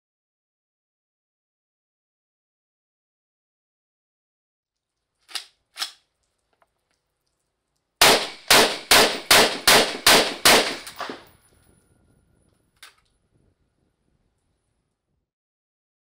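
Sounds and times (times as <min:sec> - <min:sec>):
rifle firing rapid shots: 0:08.0 - 0:11.3.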